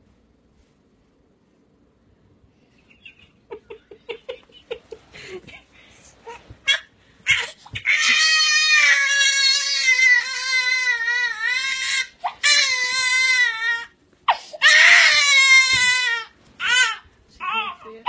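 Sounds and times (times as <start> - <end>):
baby crying: 6.3 - 17.8.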